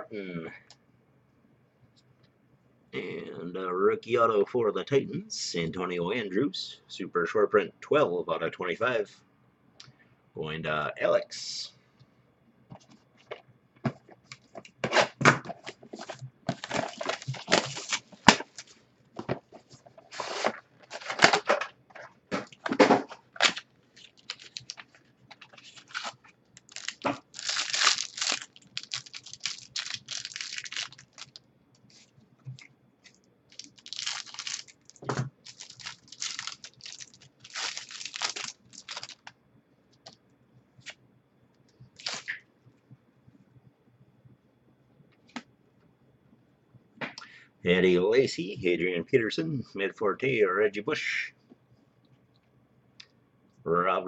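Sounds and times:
cards rustling: 15.6 - 18.8, 23.4 - 39.3, 42.0 - 42.4
wrapper tearing and crinkling: 16.5 - 18.7, 23.3 - 31.4, 33.5 - 39.3, 42.0 - 42.4.

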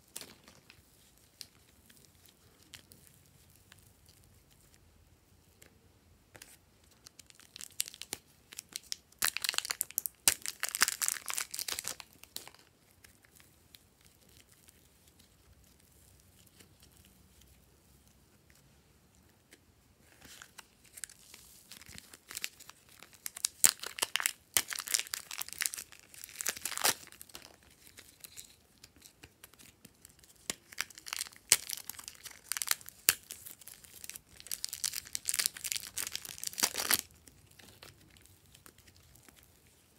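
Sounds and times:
slime crackling and tearing: 7.0 - 17.0, 20.2 - 39.5.

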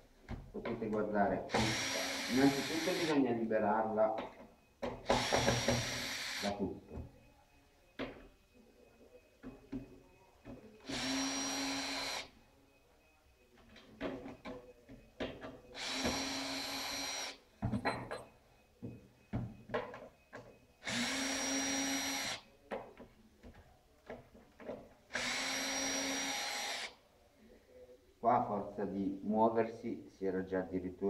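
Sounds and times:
electric drill whine: 1.5 - 3.2, 4.8 - 6.7, 10.8 - 12.3, 15.7 - 17.9, 20.8 - 22.5, 25.1 - 27.0.

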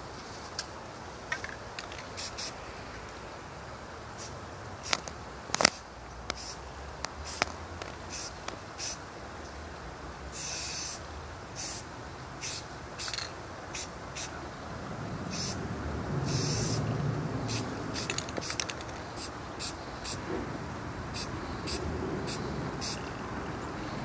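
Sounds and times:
spray-paint can hissing: 2.2 - 2.6, 5.6 - 6.6, 7.2 - 7.5, 8.1 - 9.0, 10.4 - 11.0, 11.6 - 11.8, 12.4 - 14.3, 15.3 - 15.6, 16.2 - 16.9, 17.5 - 20.2, 21.1 - 23.0.

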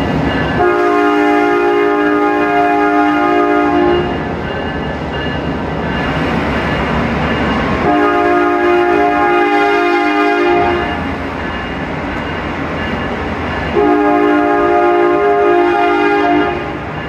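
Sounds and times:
train engine and wheels rumbling: 0.0 - 17.0
train air horn blasts: 0.6 - 4.3, 7.8 - 11.0, 13.7 - 16.9.

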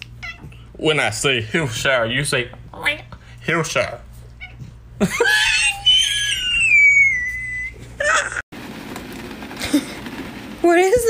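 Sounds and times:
cat yowling: 4.4 - 7.8.

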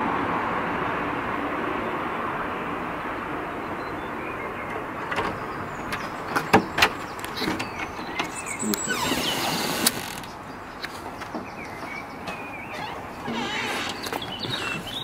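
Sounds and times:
car cabin noise: 4.7 - 10.5.

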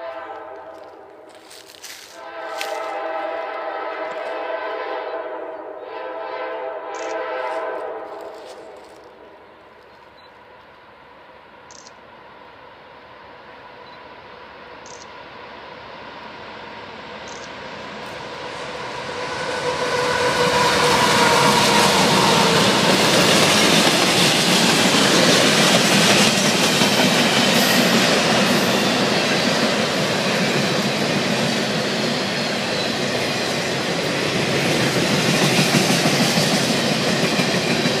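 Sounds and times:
diesel locomotive passing: 0.0 - 38.0.

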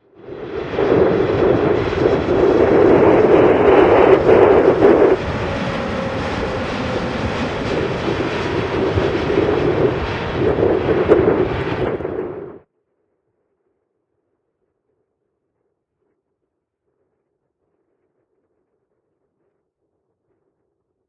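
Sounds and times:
jet engines passing close: 0.0 - 12.7.

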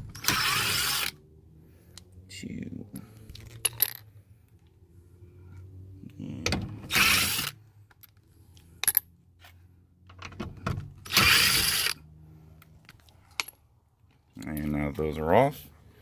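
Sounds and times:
power driver spinning out screws: 0.0 - 1.2, 6.9 - 7.6, 11.0 - 12.0.

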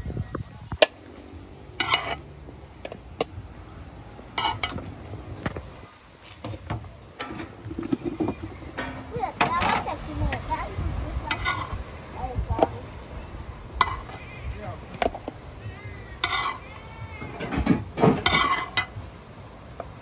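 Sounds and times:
utensil scraping pot: 1.8 - 2.3, 4.4 - 4.9, 7.2 - 10.4, 11.2 - 11.8, 13.8 - 14.4, 16.2 - 19.0
utensil clinking on pot: 8.7 - 9.8.

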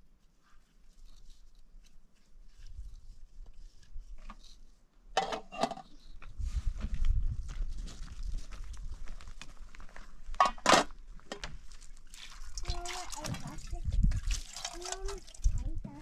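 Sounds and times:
metal pots clinking and scraping: 5.1 - 6.0.

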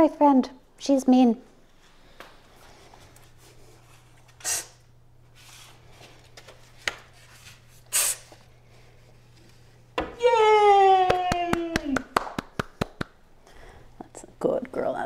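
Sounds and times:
low electrical hum: 0.0 - 15.0
short hissing noises: 4.3 - 4.9, 7.8 - 8.4.

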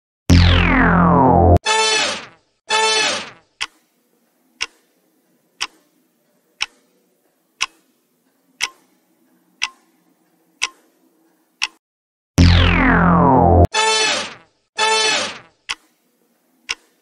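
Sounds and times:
clock ticking: 3.6 - 4.0, 4.6 - 5.0, 5.6 - 10.9, 11.6 - 11.8, 15.6 - 16.0, 16.7 - 17.0.

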